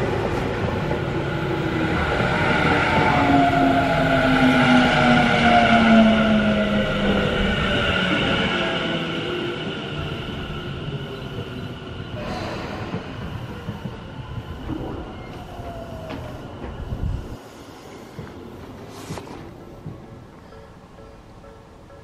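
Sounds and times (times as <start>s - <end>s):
electric train on rails: 0.0s - 22.0s
high steady train whine: 0.0s - 22.0s.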